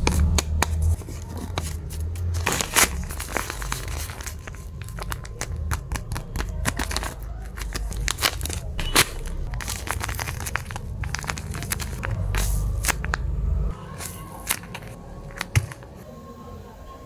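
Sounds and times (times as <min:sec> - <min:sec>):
paper crinkling and crackling: 0:00.0 - 0:16.1.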